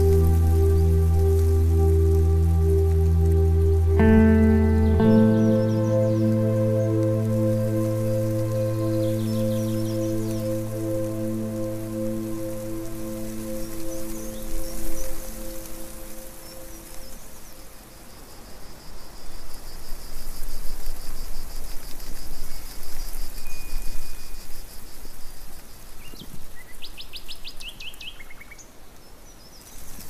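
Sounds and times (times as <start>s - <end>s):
bird chirps: 0.0s - 17.7s
steady hiss: 0.0s - 26.7s.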